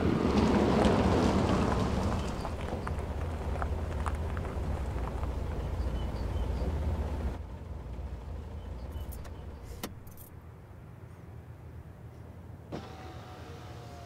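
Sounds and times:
car keys jangling: 0:08.9 - 0:10.4.

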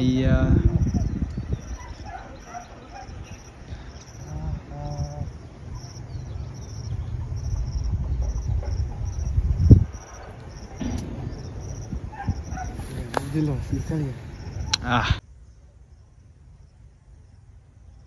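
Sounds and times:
insect chirping: 0:00.0 - 0:18.0
low rumble: 0:04.3 - 0:18.0
loud thump: 0:10.7 - 0:13.3.

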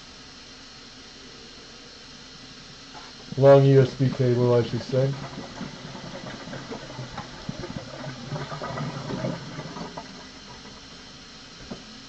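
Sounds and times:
water running from a tap: 0:03.2 - 0:11.9.

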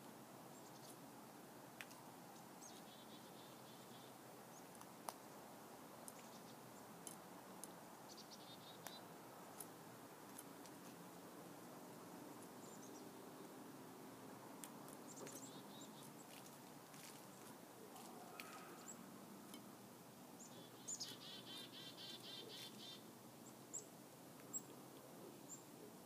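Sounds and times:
chickadee calls: 0:20.4 - 0:23.1.

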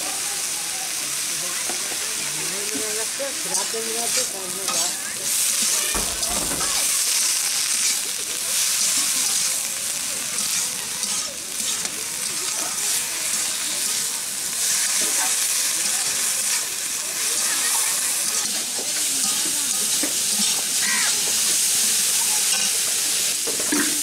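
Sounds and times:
vegetables sizzling in a pan: 0:00.0 - 0:24.0
metal spatula scraping pan: 0:03.5 - 0:07.0.

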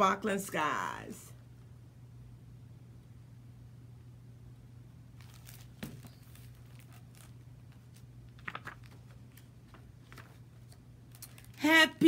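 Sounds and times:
steady low hum: 0:00.0 - 0:12.0
book pages rustling: 0:05.2 - 0:11.6.

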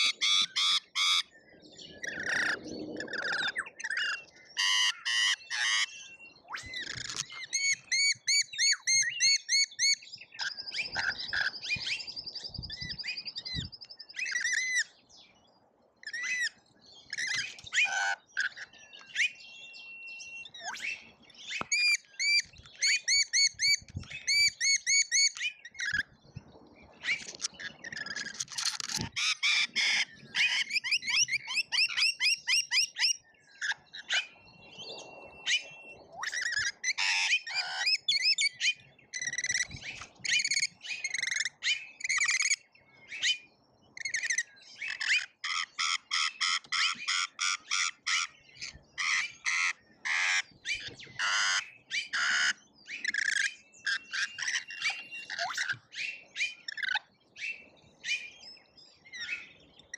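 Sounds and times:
parrots screeching and chattering: 0:00.0 - 0:01.3, 0:02.0 - 0:11.6, 0:17.1 - 0:19.3, 0:27.0 - 0:34.3, 0:36.2 - 0:38.4, 0:44.0 - 0:56.1.

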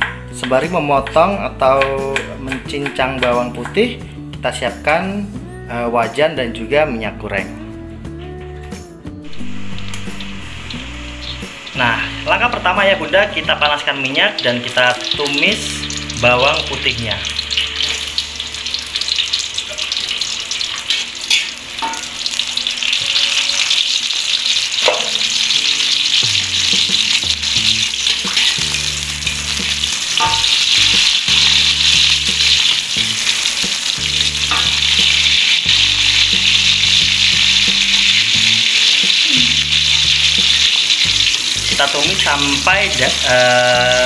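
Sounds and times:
garlic sizzling in hot oil: 0:09.2 - 0:44.0
metal spatula scraping wok: 0:17.3 - 0:24.7.

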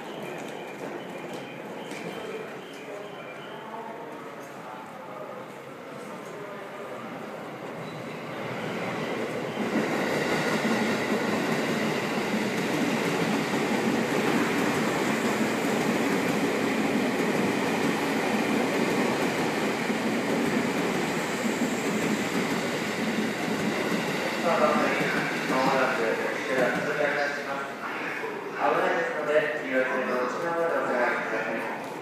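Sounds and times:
train wheels on track: 0:00.0 - 0:03.5, 0:07.5 - 0:28.1.

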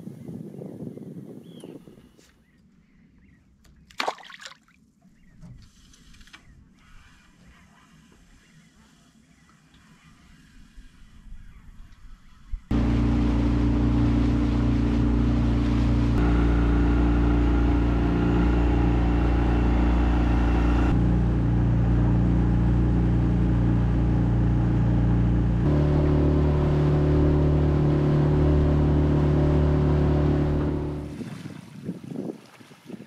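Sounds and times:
boat engine droning: 0:12.7 - 0:31.3.

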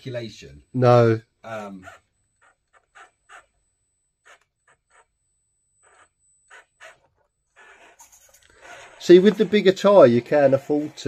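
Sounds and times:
toy car tyres scraping over gravel: 0:07.6 - 0:11.0.

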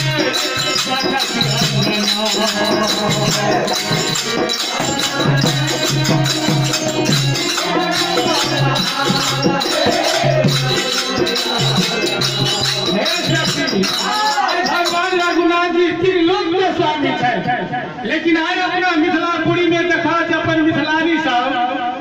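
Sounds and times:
rhythmic hand clapping: 0:00.0 - 0:15.4
jingling hand percussion: 0:00.0 - 0:15.8
group playing devotional music: 0:00.0 - 0:18.1.

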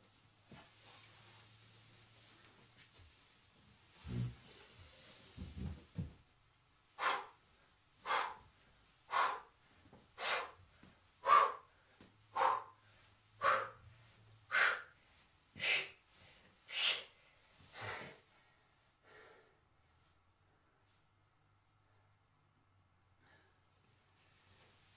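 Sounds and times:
man breathing hard: 0:07.0 - 0:15.0, 0:15.6 - 0:17.0, 0:17.7 - 0:19.6.

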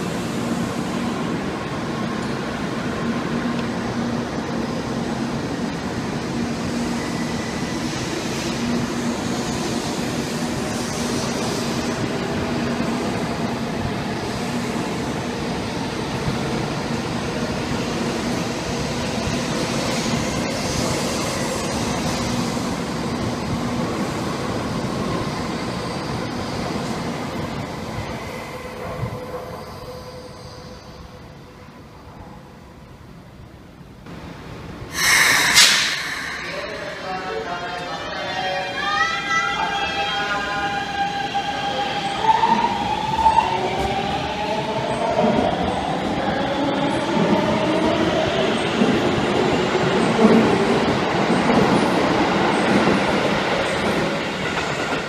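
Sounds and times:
train running on rails: 0:00.0 - 0:55.0.

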